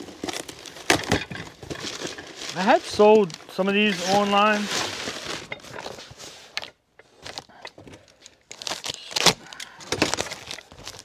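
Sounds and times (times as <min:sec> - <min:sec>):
paper packaging crinkling and tearing: 0:00.0 - 0:11.0.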